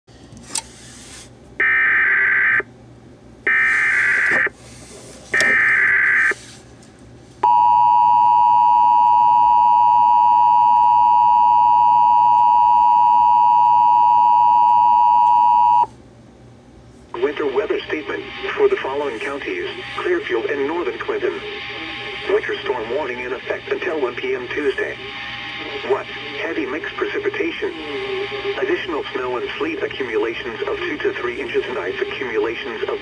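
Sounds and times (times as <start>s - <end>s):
screeching data tones: 17.9s - 33.0s.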